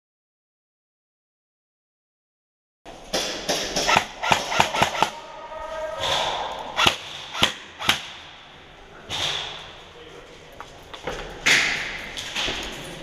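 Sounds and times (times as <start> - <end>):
airsoft guns firing: 2.9 - 5.2, 6.0 - 9.8.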